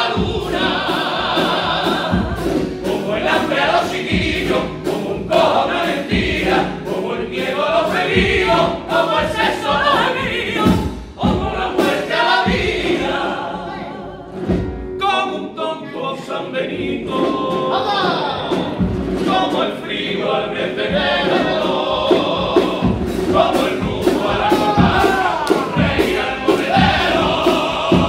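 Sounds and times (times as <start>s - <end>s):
men's choir singing: 0.0s - 28.0s
strummed guitars: 16.8s - 28.0s.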